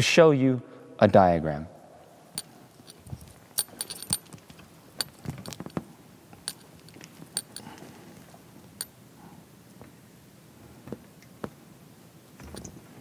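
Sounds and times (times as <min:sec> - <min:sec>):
handling clicks and knocks: 0:02.4 - 0:08.0, 0:08.6 - 0:09.0, 0:12.4 - 0:12.8.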